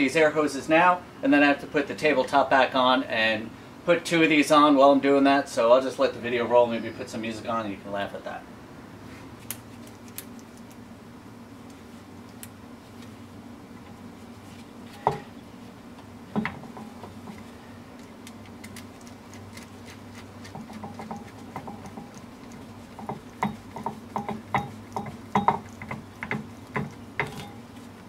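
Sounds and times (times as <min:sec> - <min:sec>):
steady low hum: 0:00.0 - 0:28.0
light metal clicks and knocks: 0:23.0 - 0:27.7.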